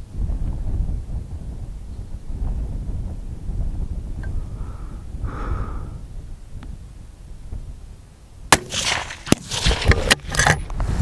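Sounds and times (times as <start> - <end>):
wind on microphone: 0.0 - 11.0
rifle shot: 8.5 - 10.2.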